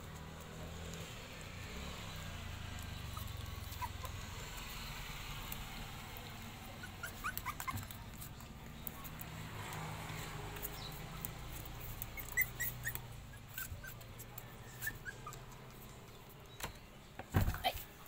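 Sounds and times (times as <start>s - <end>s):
puppies whimpering: 2.7s - 4.8s, 6.3s - 9.3s, 10.6s - 16.4s.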